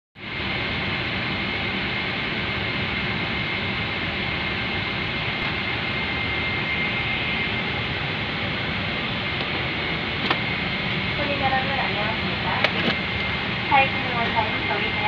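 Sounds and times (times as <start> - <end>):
rush of cabin air: 0.9 - 15.0
thin high whine: 3.8 - 15.0.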